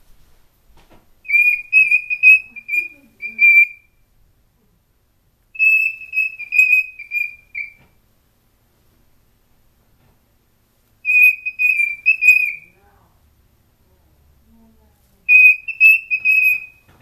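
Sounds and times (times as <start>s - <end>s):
cockatiel whistling song: 1.2s - 4.0s, 5.6s - 7.9s, 11.0s - 12.8s, 15.3s - 17.0s.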